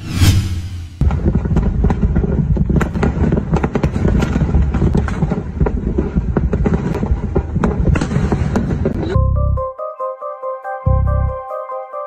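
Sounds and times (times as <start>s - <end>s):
sharp cracks and pops: 1.0s - 9.1s.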